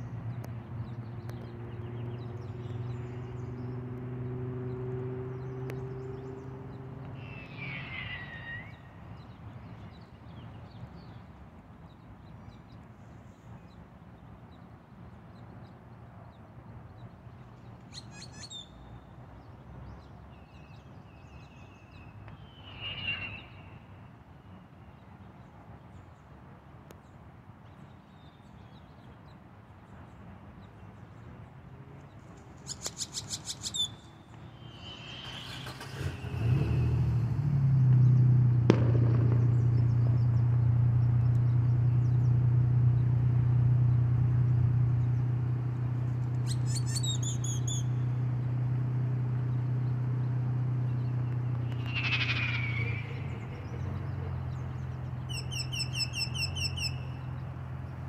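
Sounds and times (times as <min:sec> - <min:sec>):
small birds chirping: 0:00.0 - 0:26.2, 0:32.0 - 0:36.9, 0:46.0 - 0:48.5, 0:49.2 - 0:58.0
low engine drone: 0:34.4 - 0:46.9, 0:47.6 - 0:55.3.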